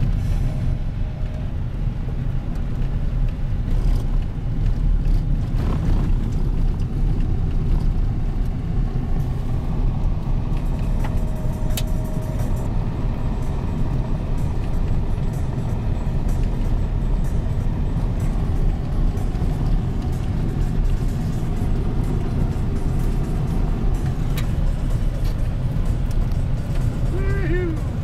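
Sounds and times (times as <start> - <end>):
tyres and engine rumbling: 0.0 - 28.0.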